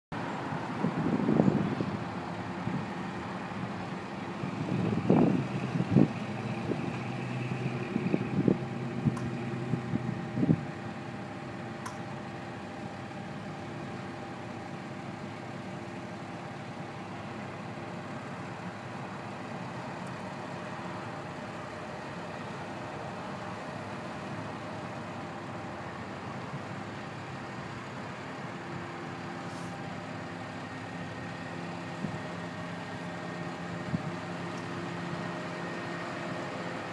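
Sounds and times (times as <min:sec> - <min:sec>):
vehicle engine idling: 0:00.1 - 0:36.9
loud low rumbles: 0:04.3 - 0:10.8.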